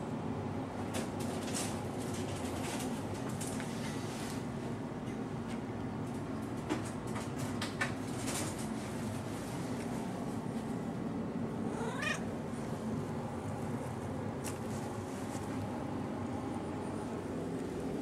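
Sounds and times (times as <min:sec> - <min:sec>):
cat meowing: 0:11.6 - 0:12.3.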